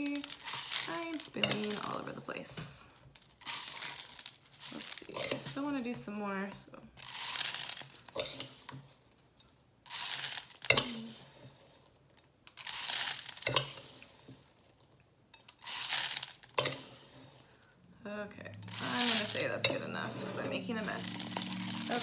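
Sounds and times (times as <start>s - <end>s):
rice pouring into bottle: 0.0s - 1.1s, 7.0s - 8.8s, 9.9s - 11.8s, 12.6s - 14.7s, 15.6s - 17.6s, 20.8s - 22.0s.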